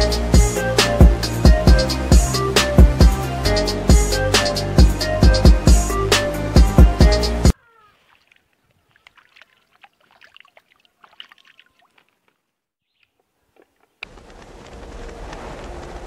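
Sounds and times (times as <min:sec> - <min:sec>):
music: 0:00.0 - 0:07.5
water ticks and splashes: 0:07.8 - 0:14.1.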